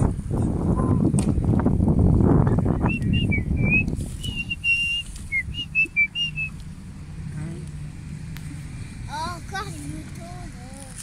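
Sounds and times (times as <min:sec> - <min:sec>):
low rumble: 0:00.0 - 0:05.7
whistled notes: 0:02.5 - 0:06.6.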